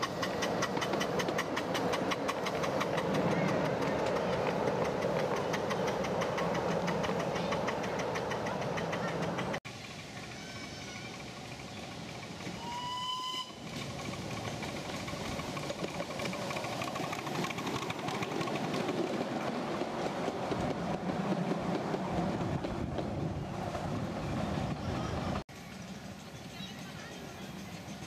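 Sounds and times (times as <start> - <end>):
train running noise: 0.0 - 28.0
train whistle: 12.6 - 13.6.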